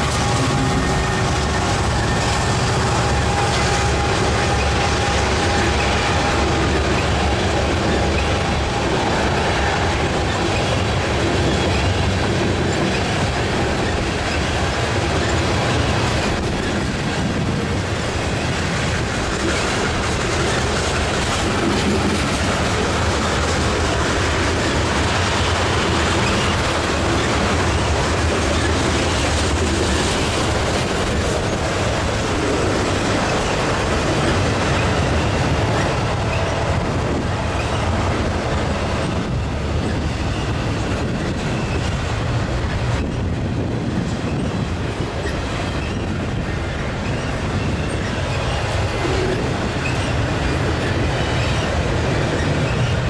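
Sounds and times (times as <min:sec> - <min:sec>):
clickety-clack over rail joints: 0:00.0 - 0:53.0
train wheels rumbling on rail: 0:00.0 - 0:53.0.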